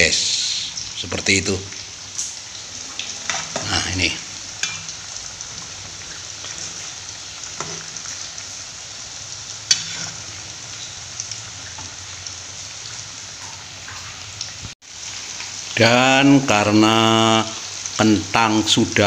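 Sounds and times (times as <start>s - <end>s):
vegetables deep-frying in hot oil: 0.0s - 19.0s
metal ladle stirring in a wok: 9.7s - 10.5s.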